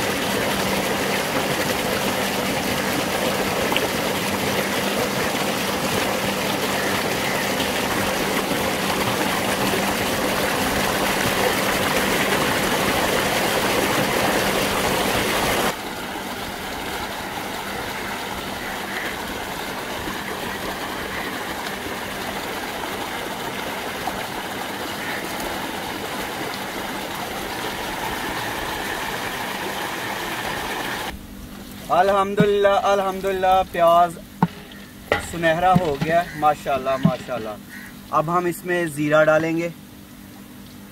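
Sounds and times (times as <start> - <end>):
water pouring out: 0.0 - 37.8
water gushing into channel: 0.0 - 38.6
low steady hum: 0.0 - 40.9
water sloshing in metal basin: 31.7 - 38.2.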